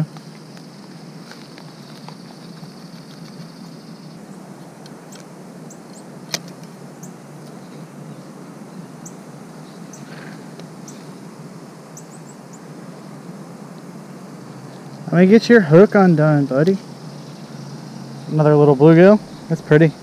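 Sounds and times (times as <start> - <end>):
low hum: 17.2 - 20.0.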